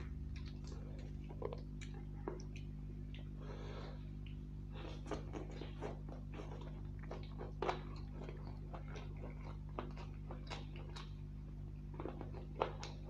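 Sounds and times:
lip smacks: 0:00.0 - 0:03.4
man chewing food: 0:00.0 - 0:13.0
steady low hum: 0:00.0 - 0:13.0.

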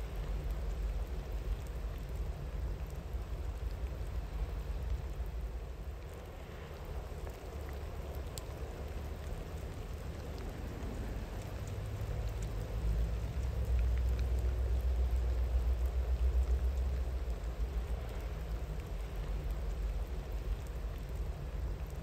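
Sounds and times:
single raindrops: 0:00.0 - 0:22.0
steady rain pattering: 0:00.0 - 0:22.0.

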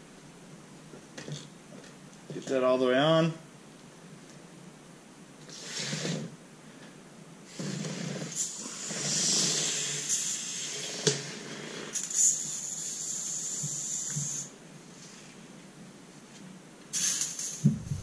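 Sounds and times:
inflator hissing into tire: 0:05.5 - 0:06.3, 0:07.5 - 0:14.5, 0:16.9 - 0:18.0.

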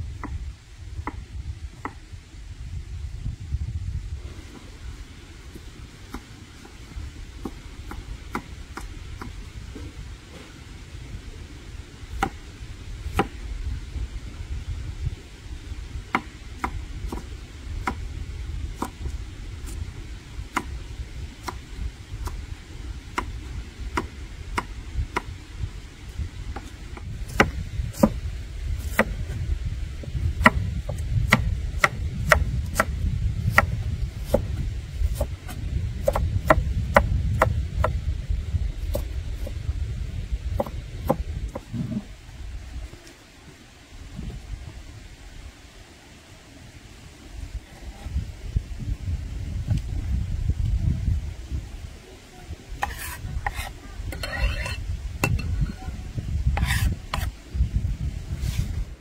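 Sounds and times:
low rumble: 0:00.0 - 0:06.1
knife chopping on wooden board: 0:27.3 - 0:28.2, 0:30.4 - 0:32.9, 0:52.8 - 0:55.5, 0:56.6 - 0:57.3.

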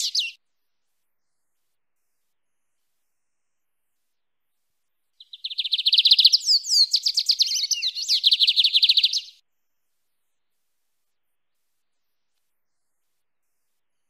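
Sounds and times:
bird trilling song: 0:00.0 - 0:00.4, 0:05.2 - 0:09.4.

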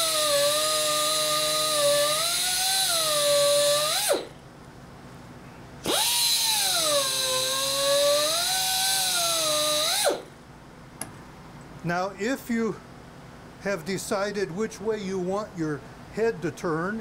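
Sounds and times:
rotary carving tool whining: 0:00.0 - 0:04.4, 0:05.8 - 0:10.3.

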